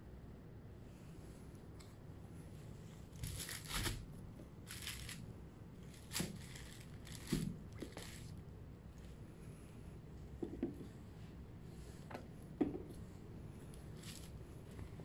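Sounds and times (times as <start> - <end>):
tissue paper crinkling: 3.2 - 5.2, 5.9 - 8.4, 14.0 - 14.4.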